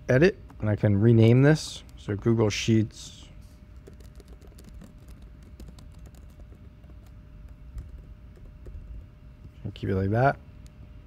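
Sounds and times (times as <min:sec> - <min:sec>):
typing on keyboard: 0:03.8 - 0:09.0.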